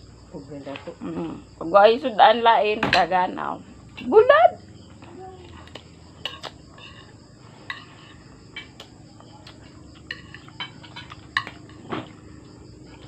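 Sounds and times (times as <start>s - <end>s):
cutlery clinking on plate: 5.6s - 8.9s, 9.5s - 12.2s.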